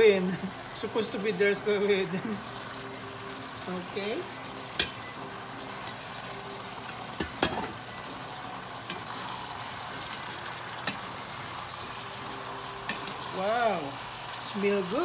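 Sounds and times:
peppers sizzling in a pan: 0:00.0 - 0:15.0
metal ladle clinking against pan: 0:04.8 - 0:05.1, 0:06.8 - 0:07.8, 0:10.8 - 0:11.1, 0:12.9 - 0:13.2.

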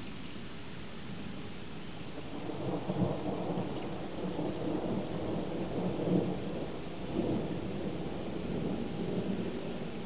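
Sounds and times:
steady hiss: 0:00.0 - 0:10.0
thunder rumbling: 0:02.2 - 0:10.0.

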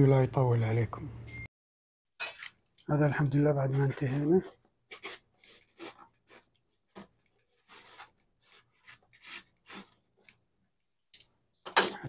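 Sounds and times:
knife sawing through foam: 0:04.9 - 0:06.5, 0:07.6 - 0:10.0.

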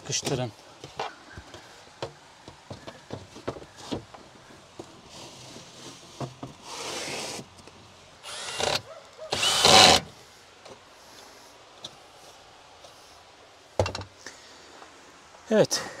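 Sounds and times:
power drill on wood: 0:08.2 - 0:10.1.

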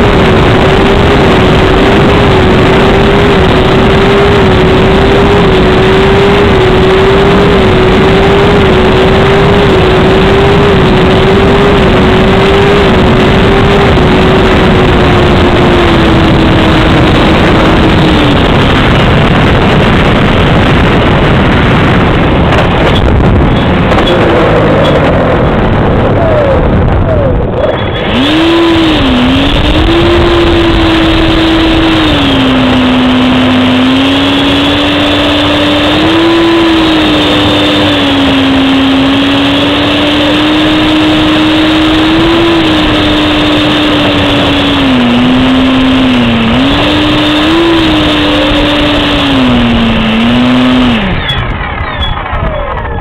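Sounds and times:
model jet motor drone: 0:00.0 - 0:20.4, 0:27.9 - 0:51.4.

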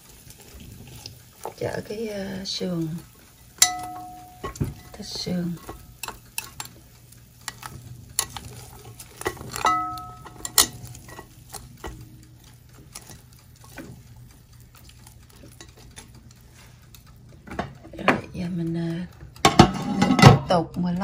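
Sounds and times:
ribs sizzling: 0:00.0 - 0:21.0
metal tongs clicking and scraping: 0:03.5 - 0:20.8
low hum: 0:03.6 - 0:06.1.

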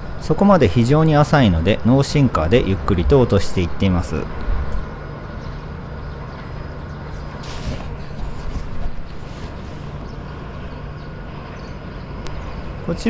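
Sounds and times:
low engine rumble: 0:00.0 - 0:13.0
brief hissing: 0:07.4 - 0:08.0.

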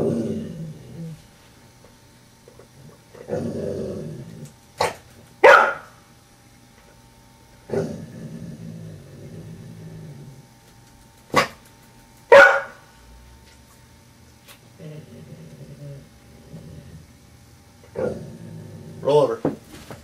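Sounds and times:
dog growling: 0:00.0 - 0:01.3, 0:02.6 - 0:05.0, 0:07.6 - 0:10.6, 0:14.7 - 0:17.2, 0:17.8 - 0:19.4
dog barking loudly: 0:05.4 - 0:05.9, 0:12.3 - 0:12.8
dog yipping: 0:05.4 - 0:05.9, 0:12.3 - 0:12.8.

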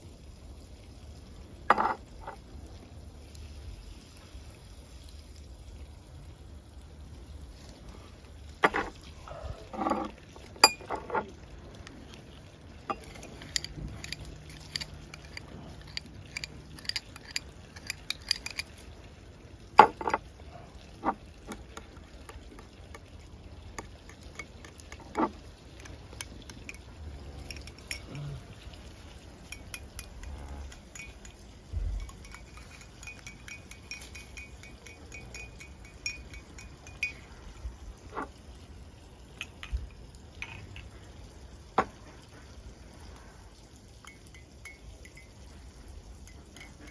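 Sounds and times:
utensils and dishes clinking: 0:09.6 - 0:11.3, 0:12.8 - 0:18.8, 0:24.0 - 0:28.3, 0:29.4 - 0:38.3, 0:46.3 - 0:46.9.

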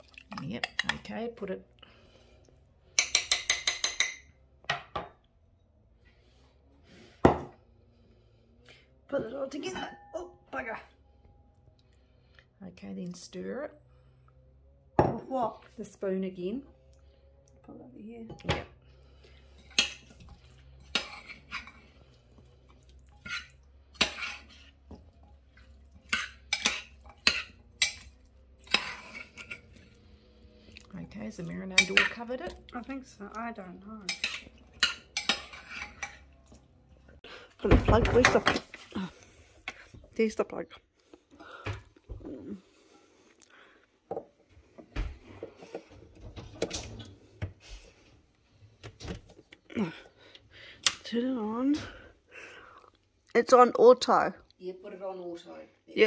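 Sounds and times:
metal spoon clinking glass bowl: 0:03.0 - 0:04.3
metal spoon scraping pot: 0:19.3 - 0:32.9, 0:34.0 - 0:36.6.

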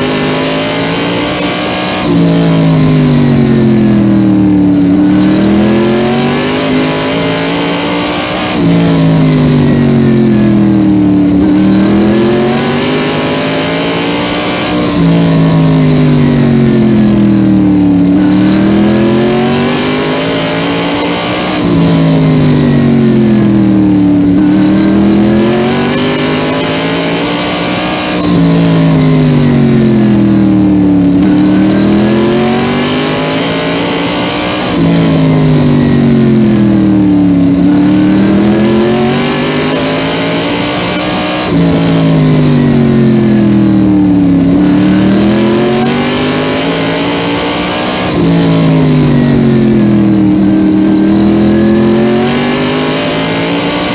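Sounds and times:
race car engine at speed: 0:00.0 - 0:53.9.

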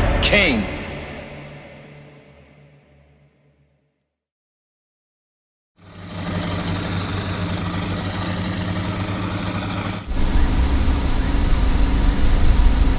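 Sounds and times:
loud deep engine: 0:05.8 - 0:12.9
vehicle engines running: 0:05.8 - 0:12.9.

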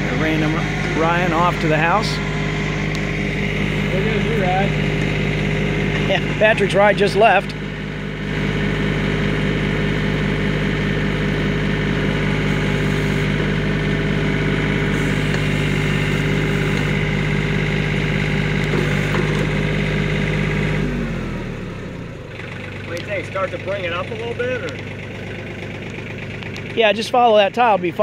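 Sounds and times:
tractor diesel engine running: 0:00.0 - 0:28.0.

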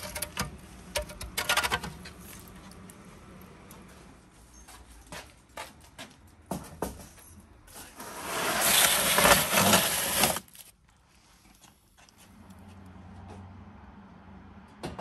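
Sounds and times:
metal tray grating across oven floor: 0:08.0 - 0:10.4.

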